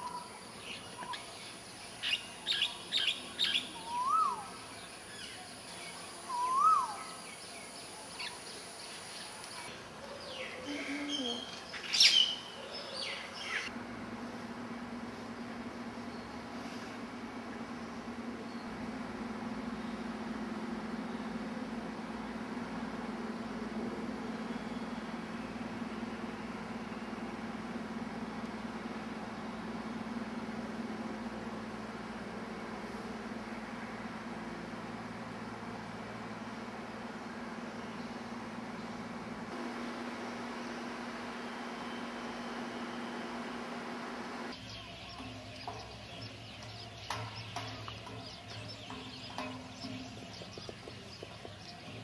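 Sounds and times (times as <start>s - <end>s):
birds chirping: 0.0s - 13.7s, 15.3s - 52.0s
lower bird calls: 0.0s - 13.7s, 40.0s - 52.0s
machine hum with hiss: 0.0s - 52.0s.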